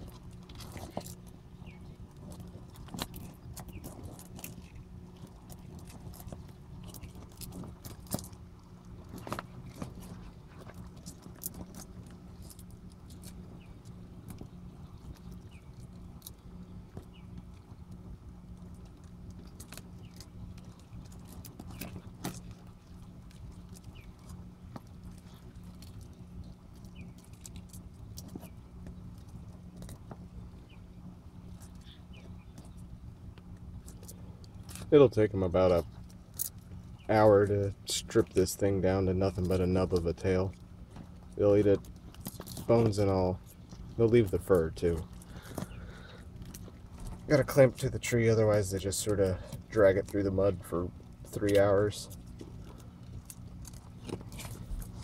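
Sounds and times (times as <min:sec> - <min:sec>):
turtles chewing and crunching: 0:00.0 - 0:55.0.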